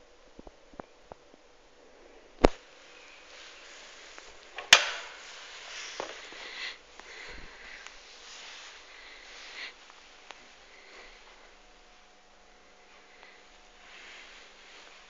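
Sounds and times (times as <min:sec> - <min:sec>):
handling noise hiss: 0:02.4 - 0:15.0
door latch click: 0:04.6 - 0:05.2.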